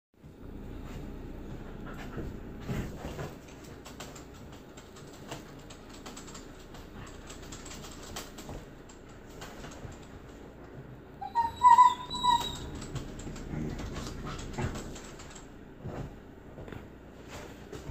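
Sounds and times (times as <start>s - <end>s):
dog whining: 11.2s - 14.5s.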